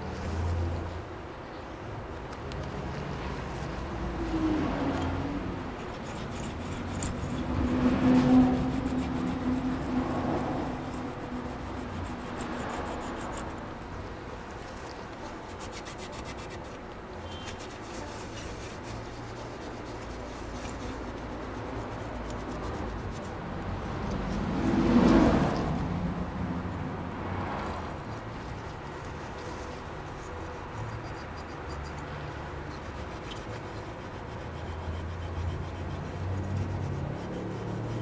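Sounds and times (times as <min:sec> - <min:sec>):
cloth rubbing on a chip: 0:03.4 - 0:13.8, 0:14.5 - 0:23.4, 0:28.1 - 0:38.0.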